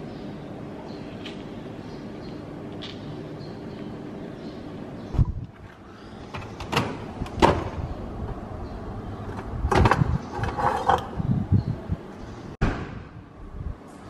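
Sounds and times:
appliance door sliding open: 0:06.4 - 0:07.8.

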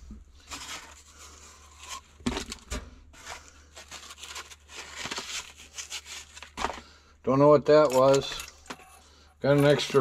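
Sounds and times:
paper packaging crinkling: 0:00.4 - 0:07.0.

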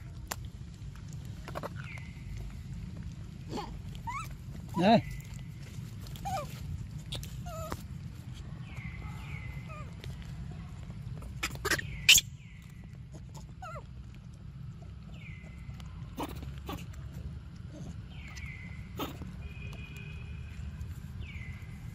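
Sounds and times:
baby monkeys squeaking: 0:04.0 - 0:05.3, 0:06.1 - 0:07.9, 0:11.2 - 0:13.8, 0:16.1 - 0:16.9, 0:17.8 - 0:19.2.

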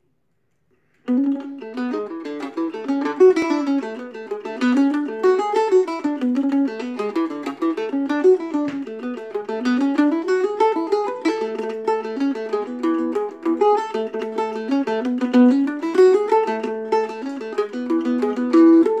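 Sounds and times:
mandolin playing a reel: 0:01.0 - 0:19.0.

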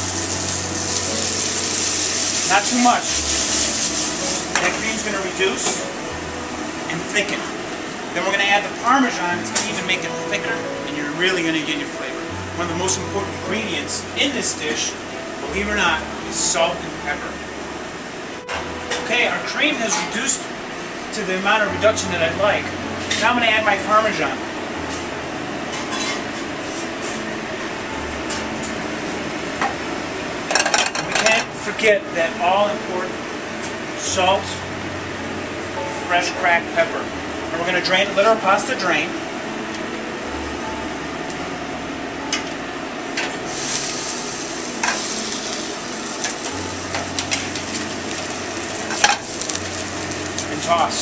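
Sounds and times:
sauce sizzling in a pan: 0:00.0 - 0:08.8, 0:43.5 - 0:51.0
kitchen hiss and hum: 0:00.0 - 0:51.0.

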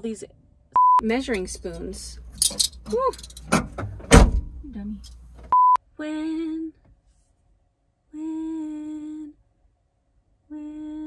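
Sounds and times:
woman humming held notes: 0:10.5 - 0:11.0.

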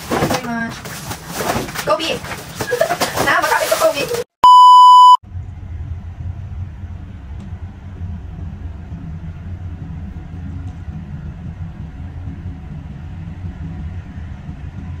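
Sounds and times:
low rumble: 0:05.2 - 0:15.0.

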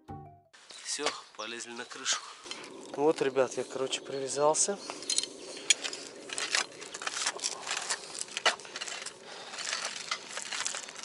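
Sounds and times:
gear rustling: 0:01.7 - 0:11.0
rope and harness gear clicking: 0:04.4 - 0:11.0.

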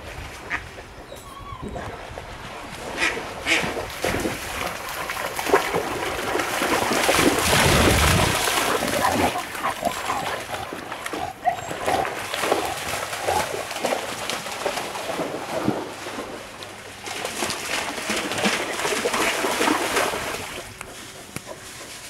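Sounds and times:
dog splashing through water: 0:01.8 - 0:22.0.

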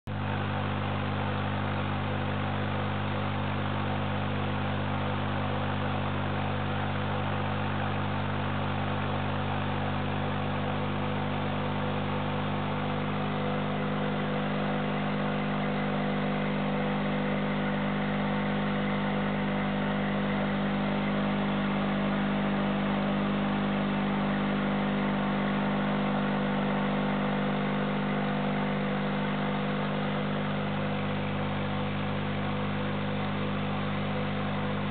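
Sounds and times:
air pump humming: 0:12.0 - 0:34.9.

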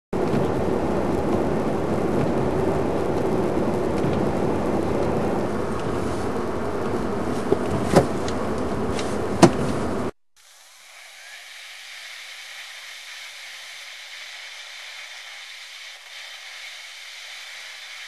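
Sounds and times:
car running from inside cabin: 0:00.2 - 0:10.2.

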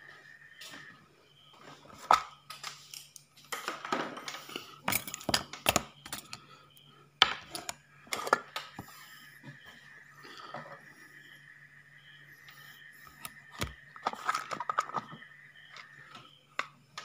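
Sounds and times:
steady low hum: 0:04.2 - 0:17.0
small parts rattling in plastic box: 0:04.8 - 0:06.4.

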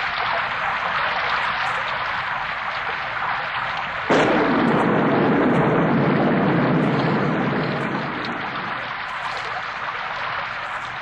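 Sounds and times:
steady rushing noise: 0:04.1 - 0:11.0.

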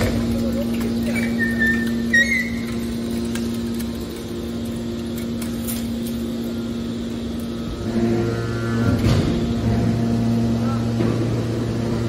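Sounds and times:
hydraulic pump motor hum: 0:00.0 - 0:12.0
high metal squeal: 0:01.1 - 0:02.9.

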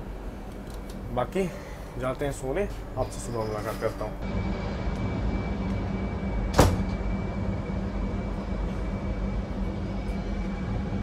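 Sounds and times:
faint high whine: 0:00.0 - 0:11.0
train coach rolling rumble: 0:00.0 - 0:11.0.

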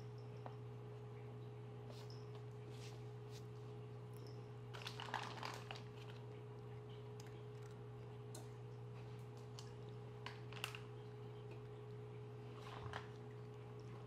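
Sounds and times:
faint steady hum: 0:00.0 - 0:14.0
cat crunching kibble: 0:04.7 - 0:14.0.

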